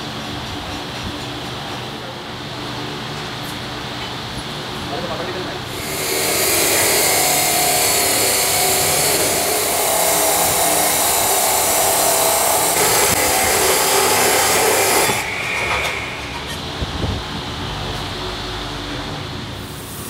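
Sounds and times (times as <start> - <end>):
chop saw grinding through steel: 5.7 - 16.6.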